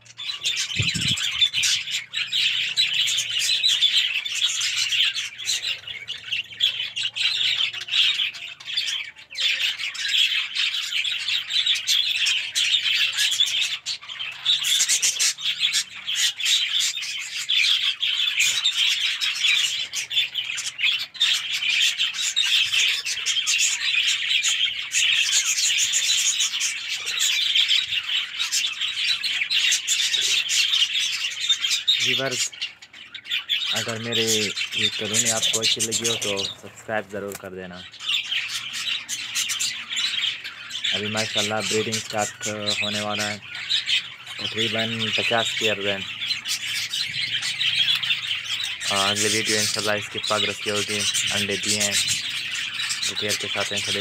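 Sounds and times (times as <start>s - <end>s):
budgerigars chirping: 0.0s - 54.0s.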